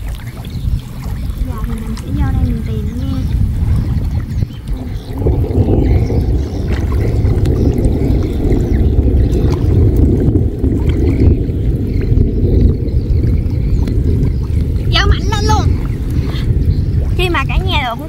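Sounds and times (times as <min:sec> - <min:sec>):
loud low rumble: 0:00.0 - 0:18.0
water sloshing: 0:00.0 - 0:18.0.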